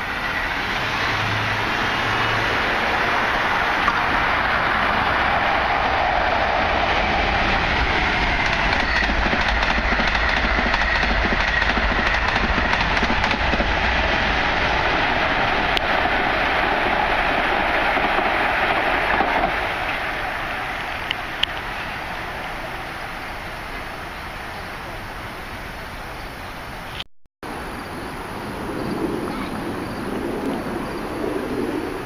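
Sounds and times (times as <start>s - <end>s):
train passing at high speed: 0.0s - 32.0s
wheels rushing on rail: 0.0s - 32.0s.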